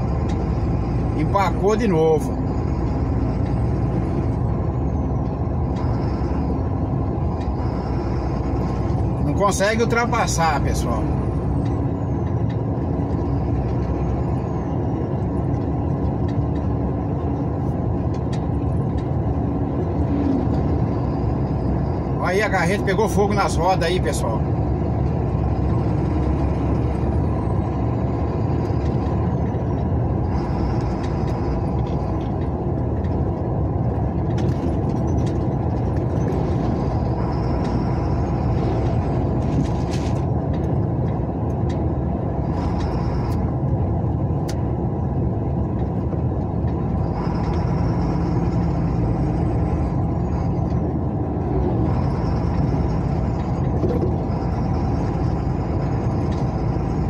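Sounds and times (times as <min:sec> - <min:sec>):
car engine and tyre rumble: 0:00.0 - 0:57.0.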